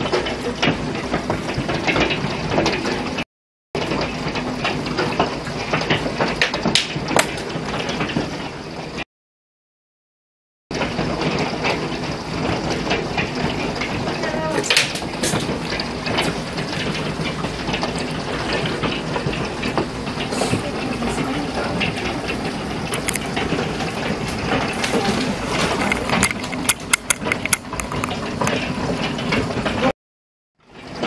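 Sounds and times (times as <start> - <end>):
hailstones pelting pavement and cars: 3.8 - 9.0, 10.8 - 29.9.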